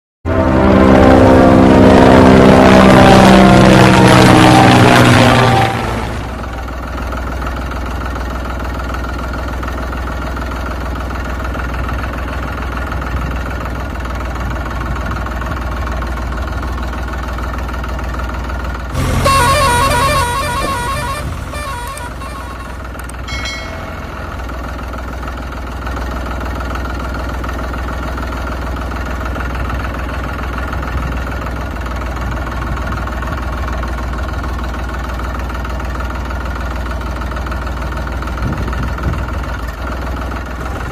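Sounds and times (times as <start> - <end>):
horn honk: 0.3 - 6.8, 18.9 - 24.7
tractor engine running: 4.5 - 40.9.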